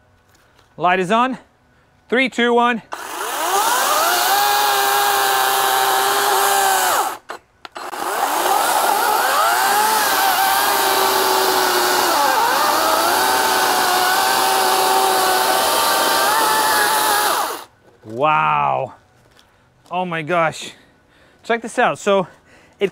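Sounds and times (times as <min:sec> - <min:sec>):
electric chainsaw whining: 0:02.9 - 0:17.7.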